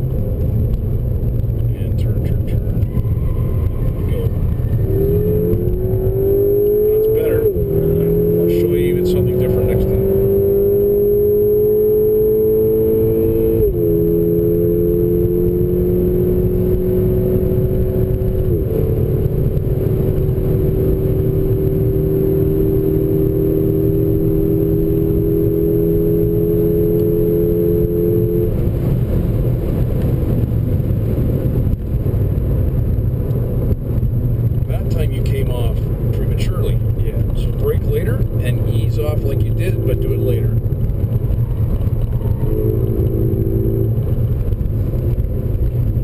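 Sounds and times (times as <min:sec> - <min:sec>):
car engine accelerating: 0:00.0 - 0:46.0
road and wind noise: 0:00.0 - 0:46.0.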